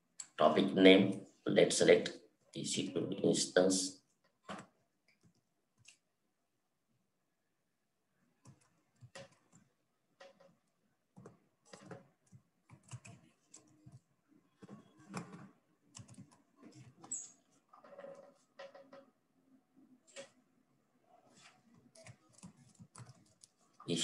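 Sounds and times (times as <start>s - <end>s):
keyboard typing: 8.4s - 19.1s, 21.6s - 23.8s.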